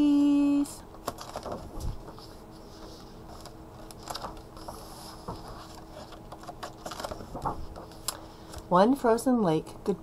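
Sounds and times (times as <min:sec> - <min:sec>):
faint steady hum: 0:00.0 - 0:10.0
book pages turning: 0:01.0 - 0:08.7.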